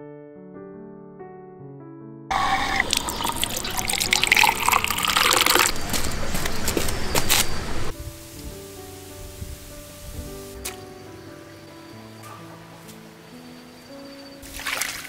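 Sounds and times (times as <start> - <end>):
water pouring into stone basin: 2.3 - 6.5, 14.4 - 15.0
water dripping and splashing: 2.3 - 7.4, 10.4 - 10.9, 14.4 - 15.0.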